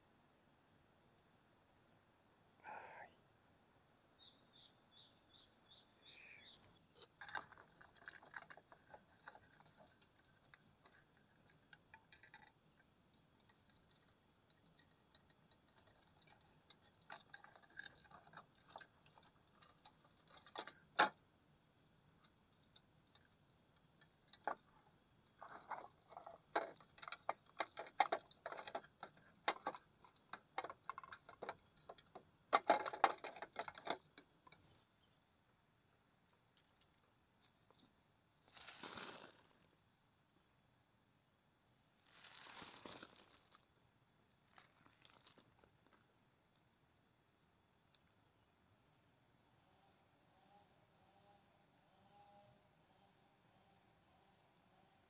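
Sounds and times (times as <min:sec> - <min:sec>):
plastic box clicking and rattling: 0:07.0 - 0:21.2, 0:25.4 - 0:34.6.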